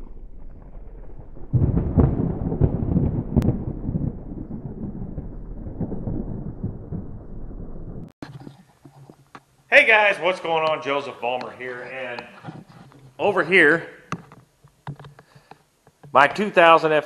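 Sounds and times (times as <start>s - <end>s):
thunder rumbling and cracking: 0.0s - 8.2s.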